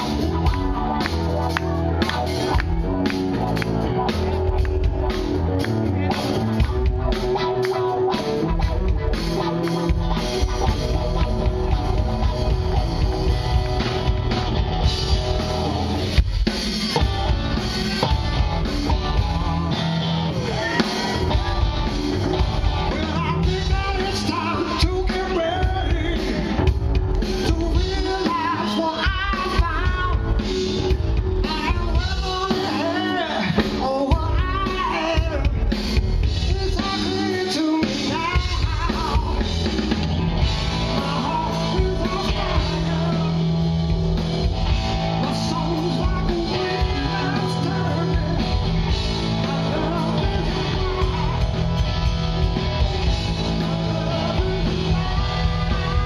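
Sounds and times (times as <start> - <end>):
bass guitar: 0.0 - 56.0
drum kit: 0.0 - 56.0
electric guitar: 0.0 - 56.0
man singing: 20.3 - 39.8, 40.6 - 56.0.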